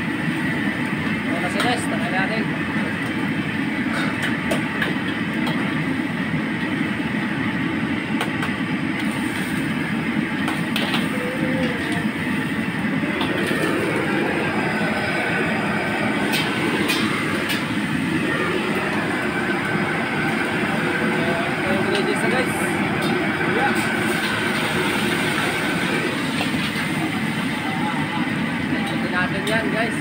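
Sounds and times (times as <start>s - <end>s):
gas burner roaring: 0.0s - 30.0s.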